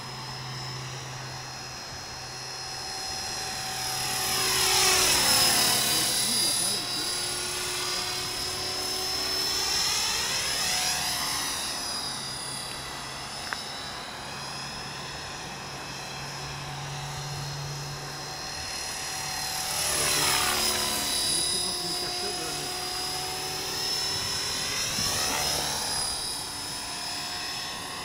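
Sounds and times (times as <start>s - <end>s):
rc helicopter motor whine: 0.0s - 28.0s.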